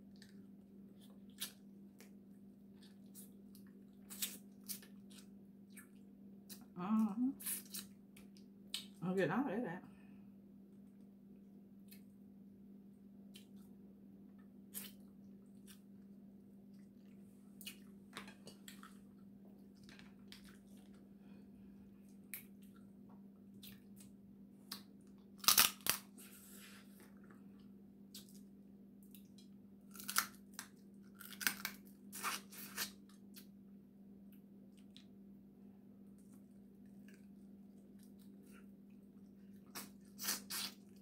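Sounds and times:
crab shell cracking and snapping: 0:24.7 - 0:26.1, 0:29.2 - 0:31.9.

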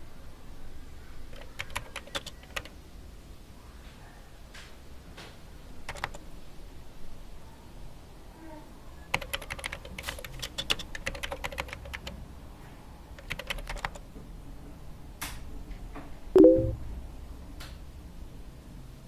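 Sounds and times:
keyboard typing: 0:01.3 - 0:02.8, 0:05.9 - 0:06.2, 0:09.1 - 0:12.2, 0:13.2 - 0:14.1, 0:16.4 - 0:16.8
message notification chime: 0:16.4 - 0:16.8.

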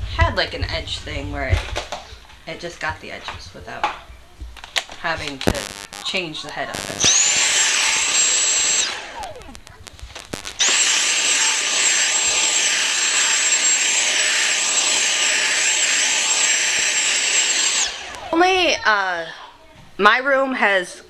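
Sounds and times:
vacuum cleaner whining: 0:06.8 - 0:09.5, 0:10.2 - 0:18.6.

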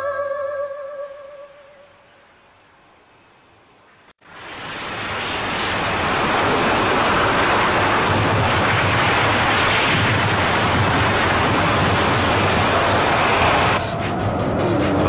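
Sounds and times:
explosion rushing noise: 0:04.4 - 0:15.0
low rumble: 0:13.3 - 0:15.0.

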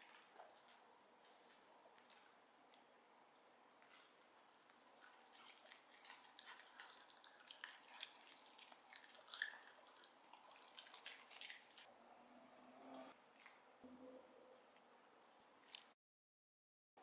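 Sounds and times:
dog chewing and lip-smacking: 0:03.8 - 0:11.9, 0:14.4 - 0:16.0.

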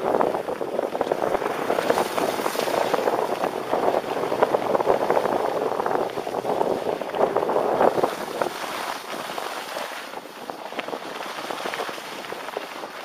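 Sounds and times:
skis scraping over snow: 0:00.5 - 0:13.0.

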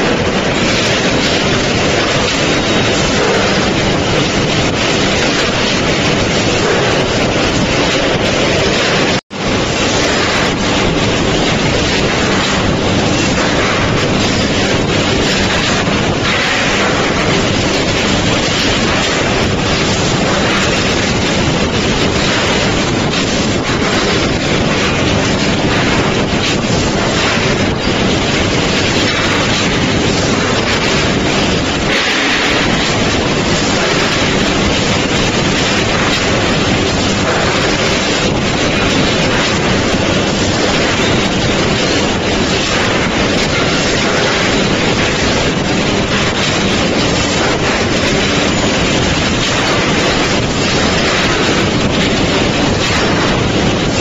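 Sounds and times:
industrial machinery rushing: 0:00.0 - 0:54.0.

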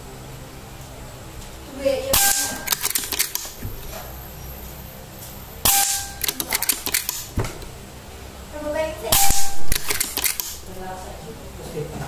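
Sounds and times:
silenced air rifle shots: 0:02.1 - 0:03.6, 0:05.6 - 0:07.4, 0:09.1 - 0:10.7.

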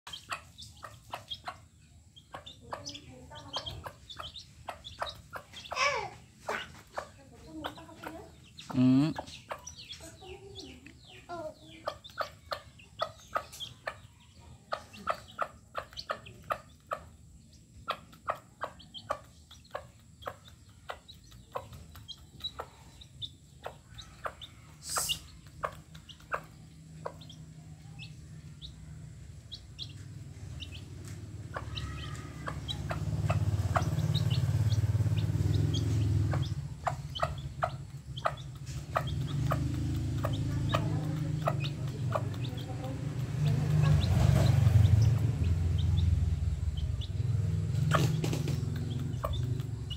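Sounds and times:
beaks tapping on concrete: 0:00.1 - 0:49.9
chickens clucking and peeping: 0:00.1 - 0:49.9
low rumble: 0:27.1 - 0:49.9.

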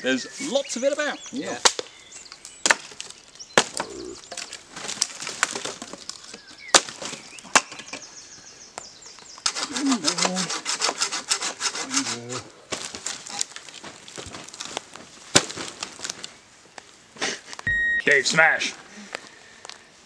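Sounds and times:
twigs rustling: 0:00.3 - 0:08.0, 0:09.1 - 0:17.6
dry branches snapping: 0:01.6 - 0:07.8, 0:12.7 - 0:16.9.

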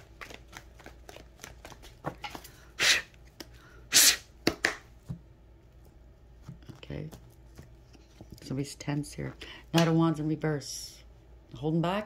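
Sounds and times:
cards being shuffled: 0:00.0 - 0:02.6.

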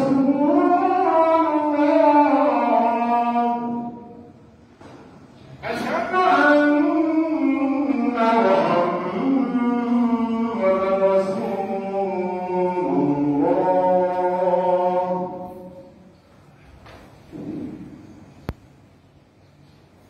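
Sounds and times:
man chanting call to prayer: 0:00.0 - 0:04.4, 0:05.5 - 0:16.2.

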